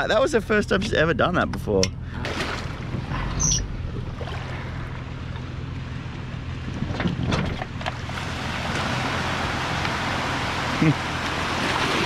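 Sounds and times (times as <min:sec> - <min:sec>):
engine humming at idle: 0:00.0 - 0:12.0
small waves washing: 0:02.2 - 0:06.7, 0:08.0 - 0:12.0.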